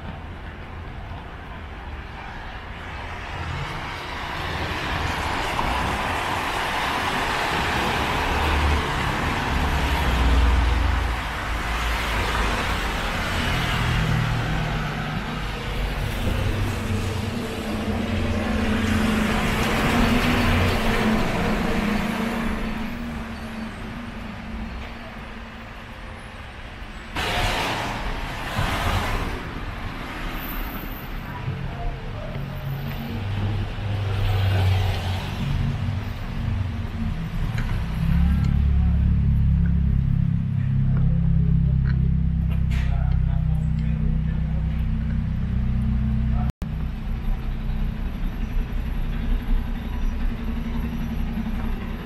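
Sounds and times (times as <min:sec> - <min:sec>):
heavy vehicle engine droning: 0:00.8 - 0:52.0
cars passing on wet road: 0:02.0 - 0:24.7, 0:25.3 - 0:43.2.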